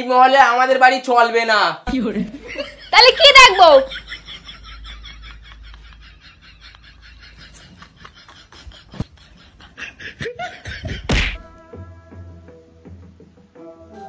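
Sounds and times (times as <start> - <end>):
quiet snickering laughter: 3.9 - 11.2.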